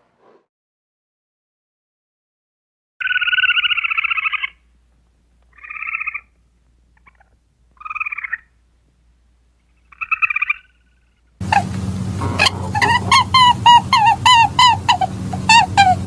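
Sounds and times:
squirrel chattering: 0:05.5 - 0:06.3, 0:07.0 - 0:08.5, 0:09.8 - 0:16.0.

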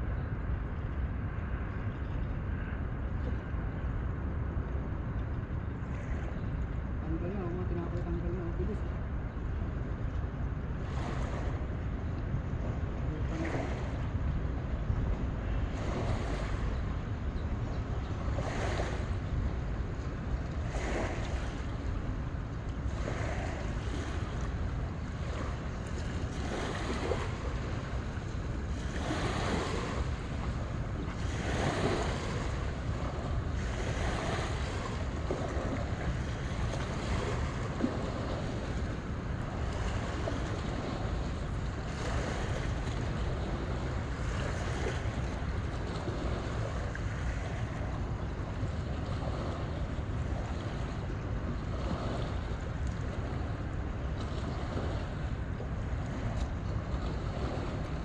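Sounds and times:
wind rumble on microphone: 0:00.0 - 0:58.0
small waves washing onto shore: 0:05.8 - 0:58.0.

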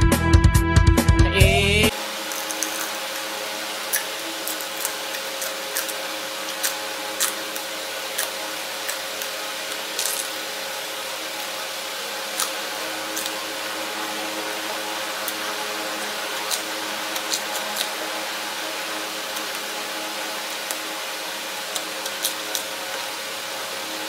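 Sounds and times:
faint hum: 0:01.4 - 0:24.0
chillies crunching being chewed: 0:02.2 - 0:10.7, 0:11.4 - 0:18.2, 0:19.2 - 0:19.8, 0:21.6 - 0:23.0.

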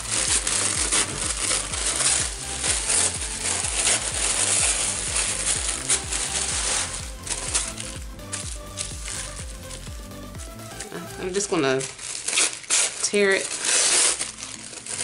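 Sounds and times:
paper rustling: 0:00.0 - 0:10.0, 0:10.7 - 0:15.0
background music with low beat: 0:00.0 - 0:11.7.

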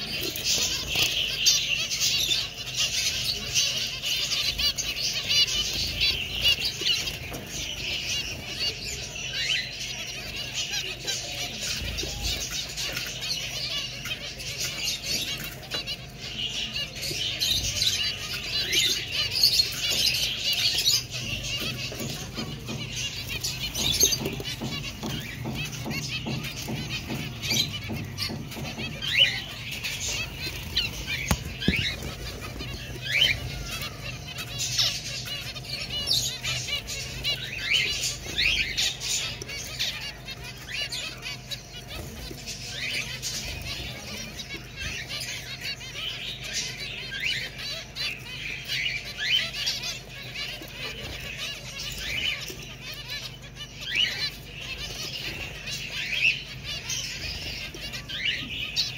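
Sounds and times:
finches chattering: 0:00.0 - 0:58.9.

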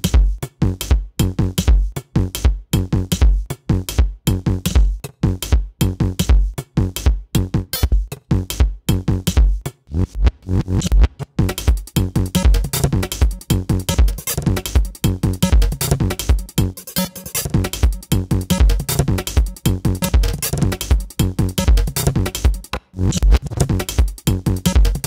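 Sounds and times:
fast drum-machine beat: 0:00.0 - 0:25.0
heavy bass: 0:00.0 - 0:25.0
electronic music: 0:07.5 - 0:25.0.

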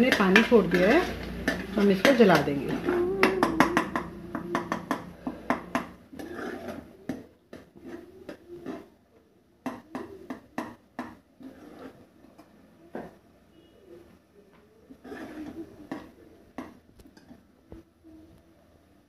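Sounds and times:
metal ladle scraping a pot: 0:00.0 - 0:07.0, 0:07.6 - 0:08.9, 0:11.4 - 0:12.5, 0:14.9 - 0:16.3.

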